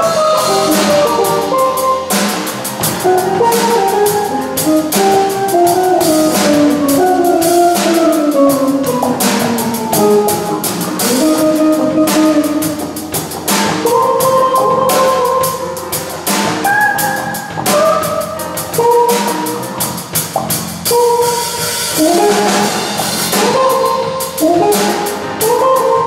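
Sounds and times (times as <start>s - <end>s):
saxophones holding notes: 0.0s - 15.9s
bass: 0.0s - 26.0s
drum kit with busy cymbals: 0.0s - 26.0s
electric guitar: 0.0s - 26.0s.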